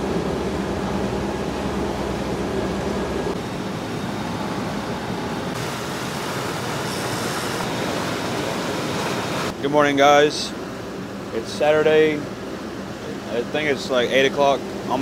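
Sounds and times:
boat engine drone: 0.0 - 15.0
water rushing: 5.4 - 9.6.

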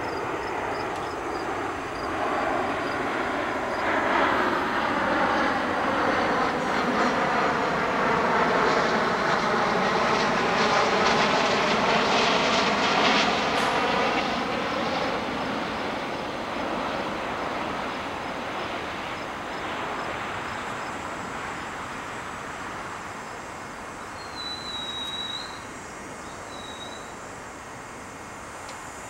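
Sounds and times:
engine drone: 9.4 - 29.0.

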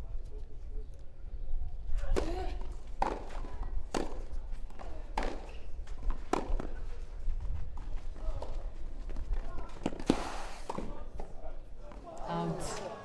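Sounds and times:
tennis rackets hitting ball: 3.0 - 6.8.

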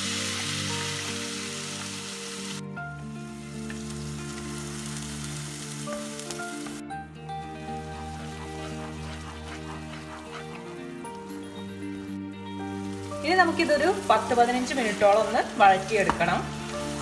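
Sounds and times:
paste sizzling in hot oil: 0.0 - 17.0.

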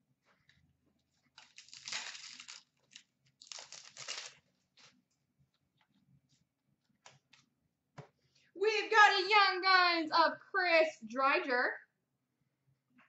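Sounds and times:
wrapper tearing and crinkling: 1.4 - 4.4.

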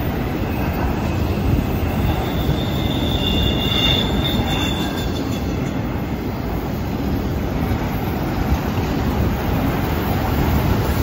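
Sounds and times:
train wheels rumbling on rail: 0.0 - 11.0
high thin wheel squeal: 1.7 - 5.8.

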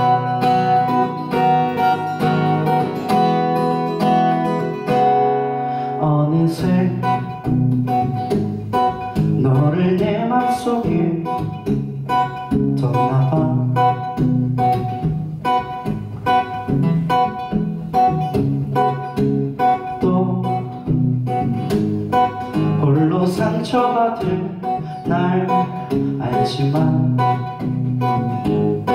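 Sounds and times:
acoustic guitar strumming: 0.0 - 28.9
man singing: 5.8 - 7.5, 9.4 - 11.6, 12.7 - 14.0, 19.8 - 20.8, 22.7 - 27.6.

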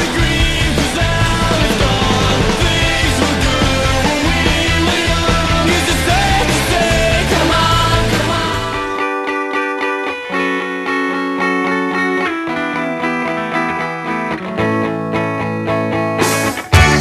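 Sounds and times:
background music with beat: 0.0 - 12.4, 16.2 - 17.0.

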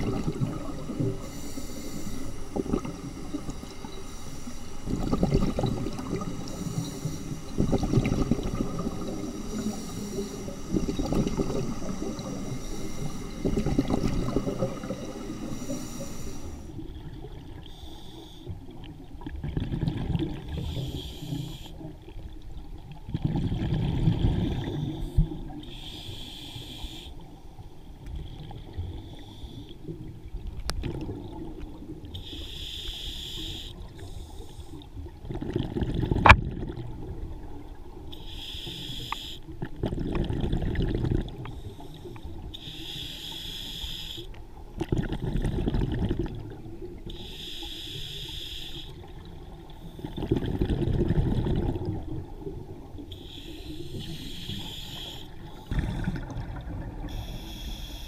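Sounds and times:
exhaled bubbles rumbling: 0.0 - 1.3, 2.3 - 15.6, 18.8 - 20.8, 22.3 - 25.6, 30.0 - 32.1, 35.0 - 38.0, 39.6 - 41.6, 44.7 - 47.1, 49.0 - 53.1, 55.6 - 57.3
scuba regulator breathing hiss: 0.6 - 5.1, 5.9 - 7.6, 8.5 - 16.8, 17.7 - 18.5, 20.6 - 21.9, 24.6 - 27.6, 28.9 - 29.9, 32.2 - 34.8, 38.1 - 39.5, 41.5 - 44.4, 47.1 - 49.1, 53.1 - 56.2, 57.0 - 58.0.

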